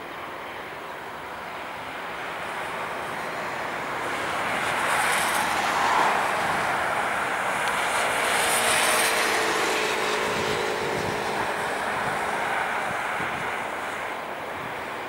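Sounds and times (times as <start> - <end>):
jet engines on landing approach: 0.0 - 15.0.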